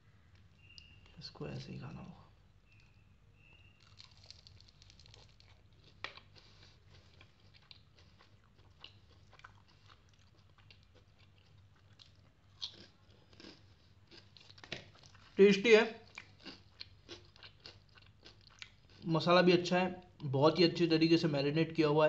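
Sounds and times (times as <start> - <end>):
crispy fried chicken crunching: 2.7 - 19.1.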